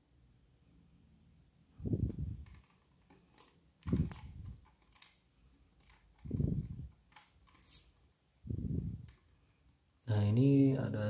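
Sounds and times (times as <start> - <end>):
low muffled rustles: 1.8 - 2.6, 6.2 - 6.9, 8.4 - 9.1.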